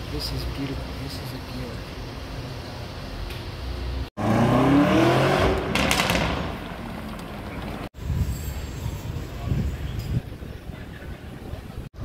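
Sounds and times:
car engine accelerating: 4.2s - 7.9s.

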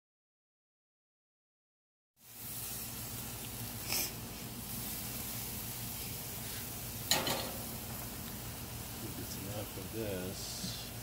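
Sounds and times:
steaks sizzling on a grill: 2.2s - 11.0s.

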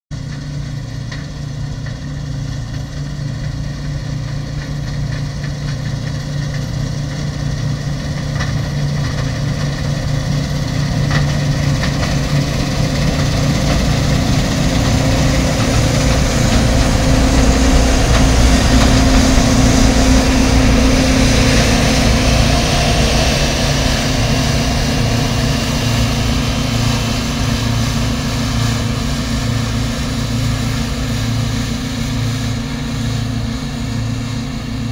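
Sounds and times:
combine harvester running: 0.2s - 34.9s.

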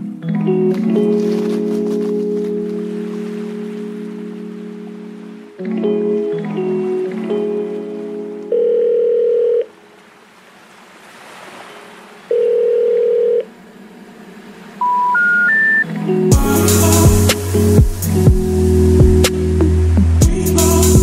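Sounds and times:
telephone ringing beeps: 8.5s - 9.7s, 12.3s - 13.5s, 14.8s - 15.9s
short rising telephone tones: 12.3s - 13.5s, 14.8s - 15.9s
beat with bass and drums: 16.3s - 21.0s.

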